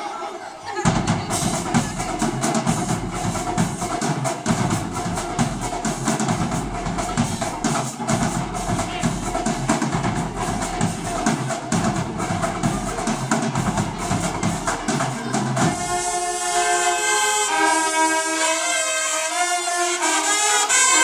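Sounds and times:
snare and bass drums beating: 0.8 - 16.5
brass section holding notes: 14.8 - 21.0.

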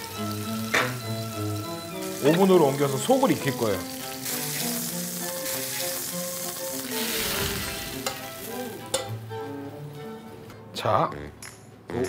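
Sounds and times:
meat sizzling in frying pan: 0.0 - 9.5.

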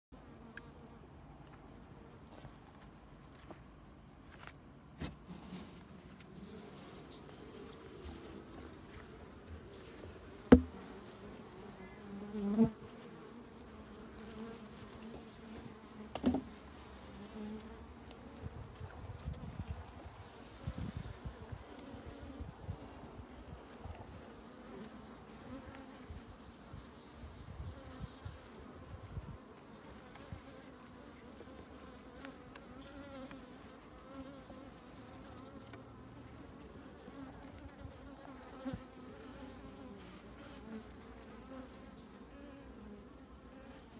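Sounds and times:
honeybees buzzing: 0.2 - 43.9
sharp knocks: 10.5 - 10.8.

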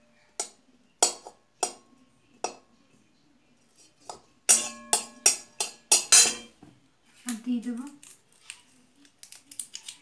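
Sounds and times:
spatula clinking on metal pan: 0.4 - 1.8, 4.1 - 6.5.

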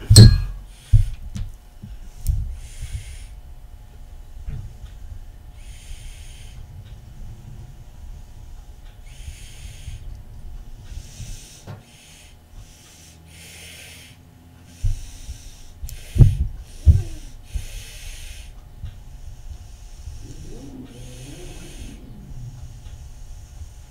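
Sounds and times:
person breathing hard: 0.6 - 3.5, 10.8 - 23.9.

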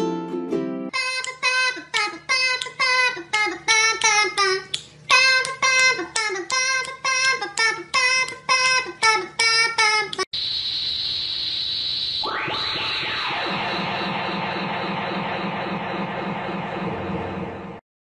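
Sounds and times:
high-pitched singing voice: 0.9 - 10.3.

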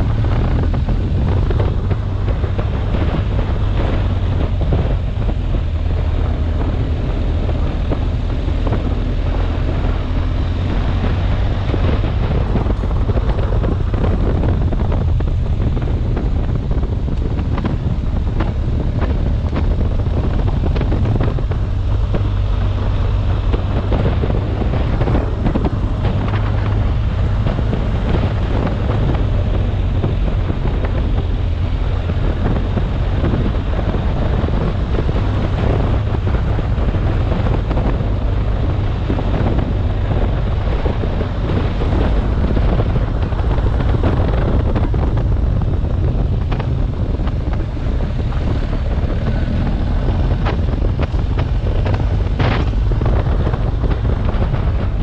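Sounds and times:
motorcycle engine running: 0.0 - 55.0
wind buffeting microphone: 0.0 - 55.0.

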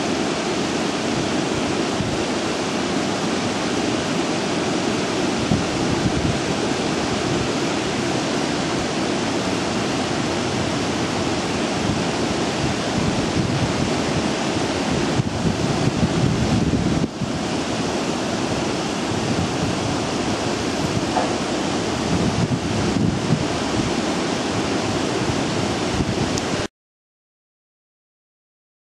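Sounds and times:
wind buffeting microphone: 4.8 - 26.7.

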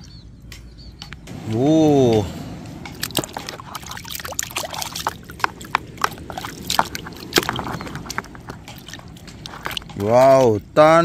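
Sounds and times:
water dripping: 1.0 - 10.8
water splashing in a plastic tub: 2.9 - 10.6.

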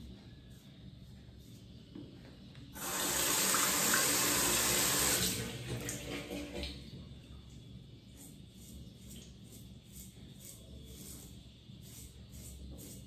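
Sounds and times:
sink tap running: 2.8 - 6.7.

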